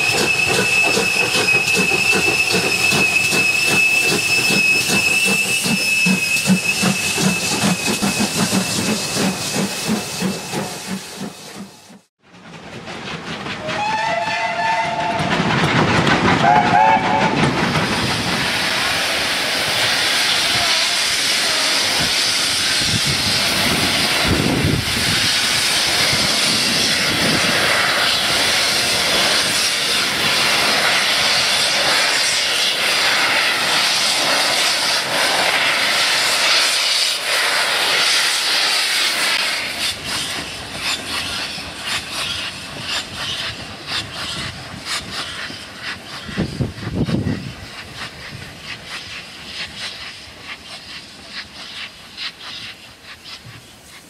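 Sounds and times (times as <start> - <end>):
steady high train whistle: 0.0 - 9.4, 13.6 - 15.4, 16.4 - 17.5, 20.3 - 22.2
whistle in wavering blasts: 0.0 - 9.6
steam locomotive exhaust beats: 0.0 - 54.0
steam locomotive passing: 0.0 - 54.0.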